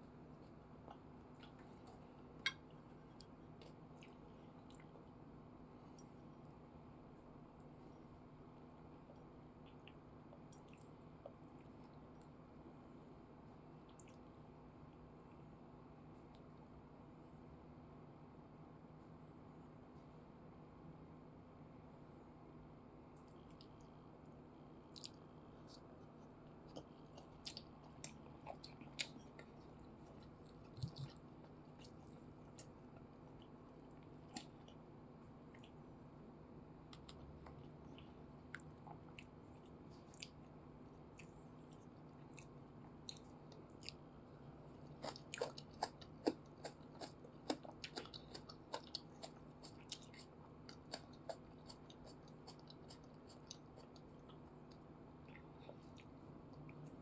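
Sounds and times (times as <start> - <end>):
low steady hum: 0.0 - 57.0
wet clicks of sticky food: 0.8 - 5.0.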